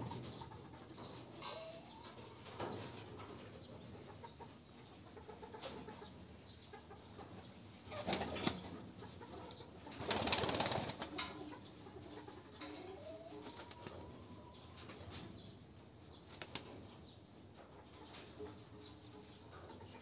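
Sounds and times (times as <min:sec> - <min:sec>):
pigeon wings flapping: 0:10.0 - 0:11.2, 0:16.3 - 0:16.7.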